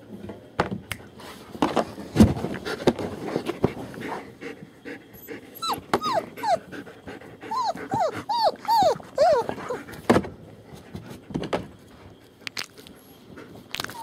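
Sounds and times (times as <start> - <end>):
puppies whimpering: 5.2 - 10.0.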